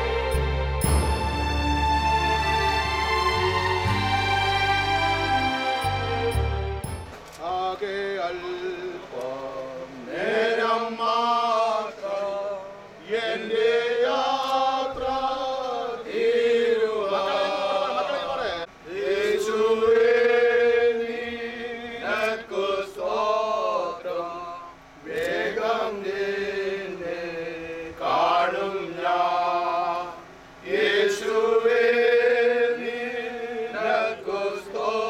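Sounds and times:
men singing a hymn: 7.3 - 35.0.

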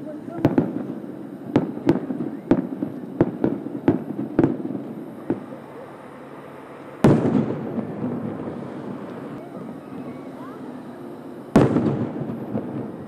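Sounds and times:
distant firework bangs: 0.3 - 6.0, 6.7 - 10.4, 11.5 - 13.0
loud rumbling firework boom: 7.0 - 9.3, 11.6 - 13.0.

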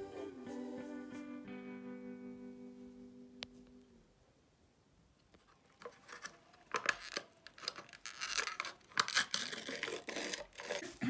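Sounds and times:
plastic wrapper crinkling: 5.3 - 10.8
lid being peeled back: 5.8 - 10.9.

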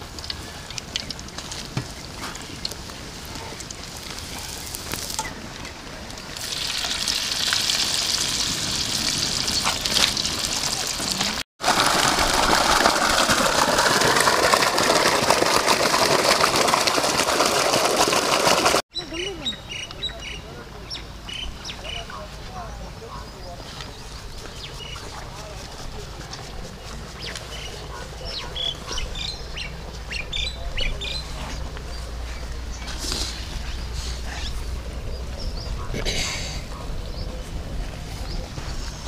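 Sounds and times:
batter frying in hot oil: 6.3 - 14.8
water gushing from pipe: 6.3 - 18.8.

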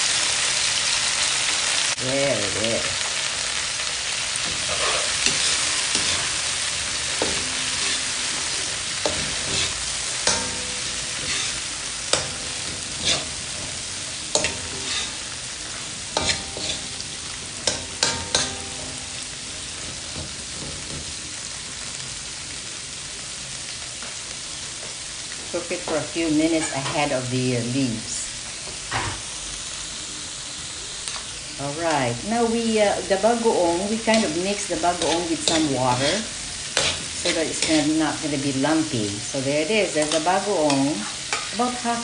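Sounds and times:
vegetables sizzling in oil: 0.0 - 42.0
metal spatula scraping wok: 4.2 - 21.4, 26.4 - 27.2, 32.3 - 42.0.

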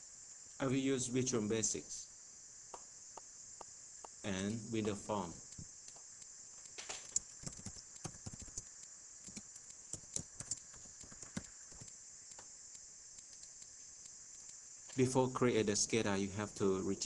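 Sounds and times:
faint high hiss: 0.0 - 17.0
keyboard keys clicking: 7.1 - 8.6, 10.0 - 11.9.

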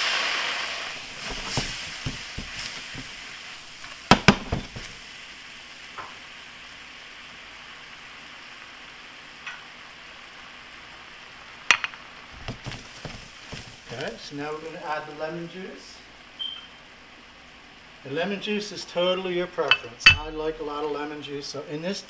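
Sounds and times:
stock sizzling and bubbling in pan: 0.0 - 22.0
sharp knocks: 1.2 - 3.2, 4.1 - 5.0.

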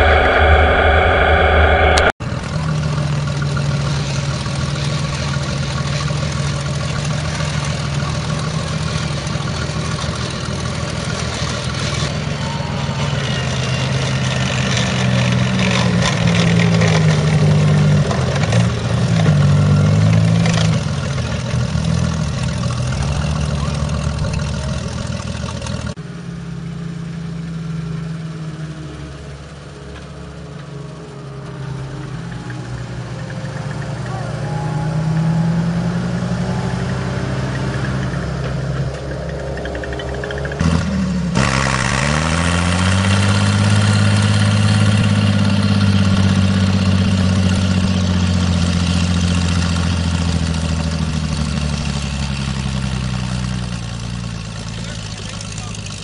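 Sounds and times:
tank engine driving past: 0.0 - 56.0
vehicle engine running steadily: 0.0 - 56.0.

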